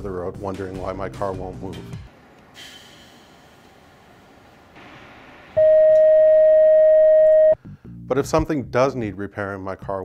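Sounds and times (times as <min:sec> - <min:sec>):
faint hiss: 0:02.2 - 0:05.6
long electronic beep: 0:05.6 - 0:07.6.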